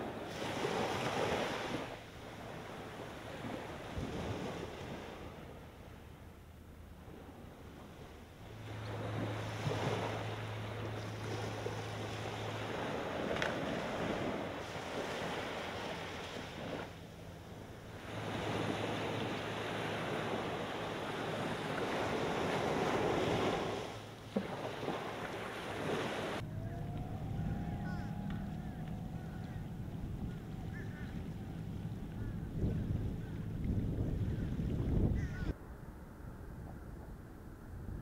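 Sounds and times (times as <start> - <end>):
waves washing on a beach: 0.0 - 5.9, 6.9 - 35.3
wind noise on microphone: 25.8 - 38.0.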